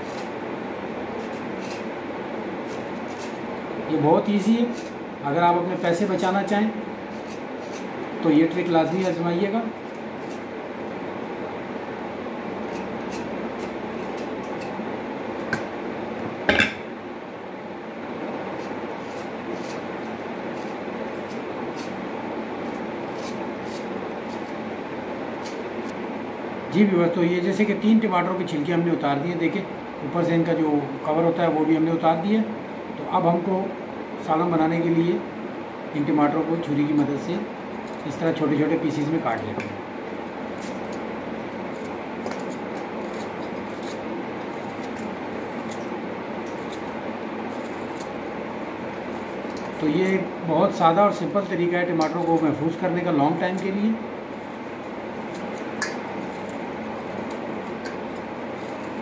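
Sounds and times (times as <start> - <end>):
knife scraping tomato skin: 0.0 - 0.4, 1.0 - 10.5, 12.4 - 15.7, 18.4 - 26.0, 36.6 - 50.3, 51.0 - 59.0
mechanical whooshing hum: 0.0 - 59.0
steady background hiss: 0.0 - 59.0
knife cutting frozen tomato: 1.2 - 1.9, 2.6 - 3.4, 7.1 - 7.9, 18.6 - 22.0, 22.6 - 24.6, 40.4 - 48.3.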